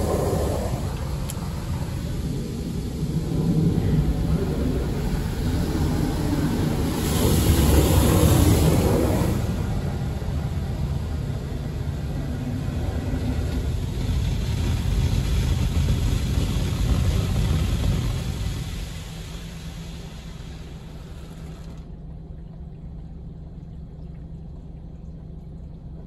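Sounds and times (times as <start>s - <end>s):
car wash hissing spray: 0.0s - 21.8s
car wash low rumble: 0.0s - 26.0s.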